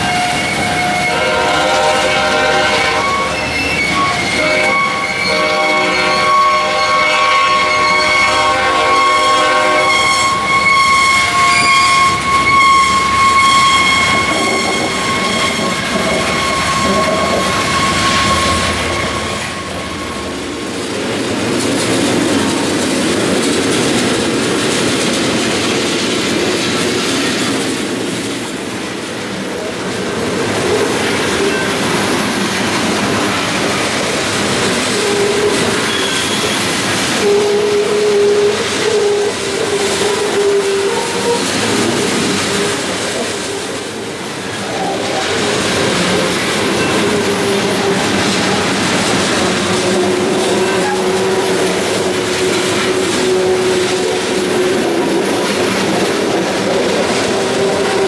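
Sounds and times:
freight train rolling past: 0.0s - 58.0s
thin high tone: 9.8s - 20.6s.

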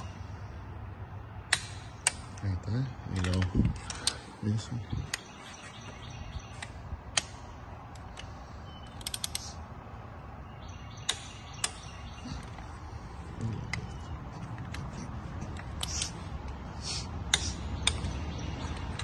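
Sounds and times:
torque wrench clicking: 8.9s - 9.6s.

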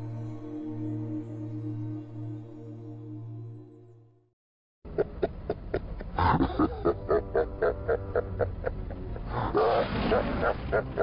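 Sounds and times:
man laughing deeply: 4.9s - 11.0s.

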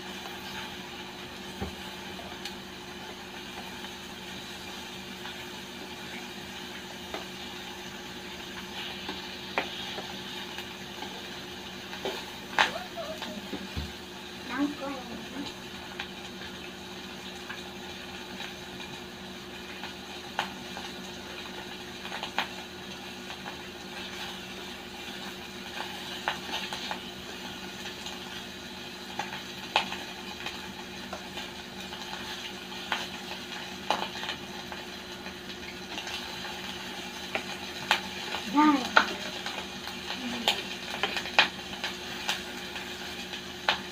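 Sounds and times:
meat sizzling on a grill pan: 0.0s - 43.9s.

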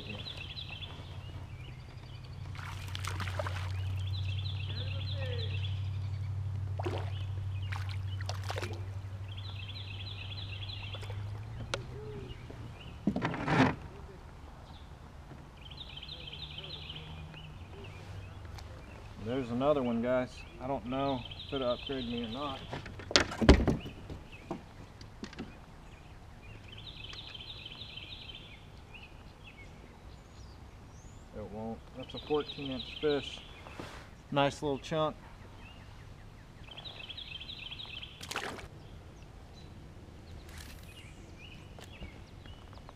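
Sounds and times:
fish splashing in water: 2.5s - 4.1s, 6.7s - 8.9s, 38.2s - 38.7s.

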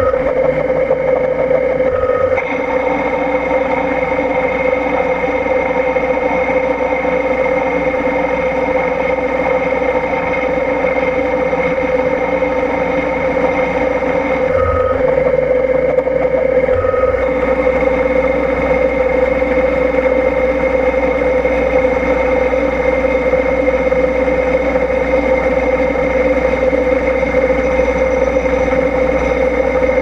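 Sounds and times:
milling machine spindle whine: 0.0s - 30.0s.

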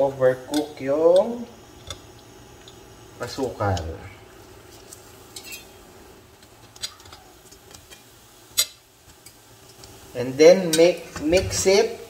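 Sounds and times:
utensils clinking on frying pan: 5.3s - 5.8s.

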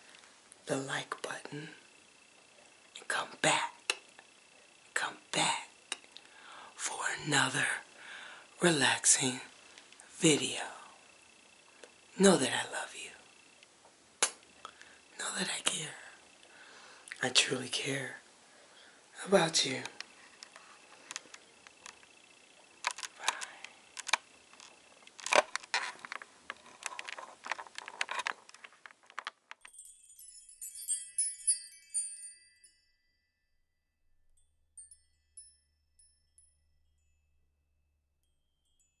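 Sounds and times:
high twinkling chime jingle: 29.6s - 33.6s, 34.4s - 37.4s, 38.2s - 39.0s.

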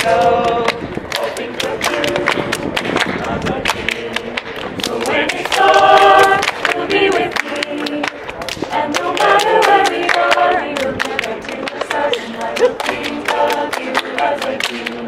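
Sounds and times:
group singing a cappella: 0.0s - 15.0s
hand claps: 0.0s - 15.0s.

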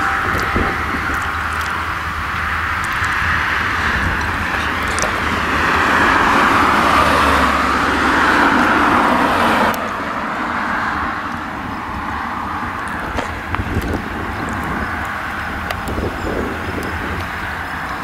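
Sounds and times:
tractor engine: 0.0s - 18.0s
trailer rolling: 0.0s - 18.0s.

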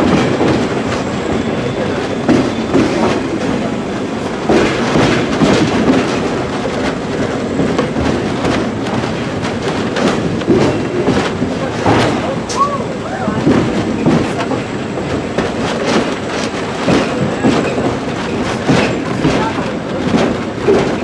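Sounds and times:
train rumbling: 0.0s - 21.0s
wheels clacking over rail joints: 0.0s - 21.0s.

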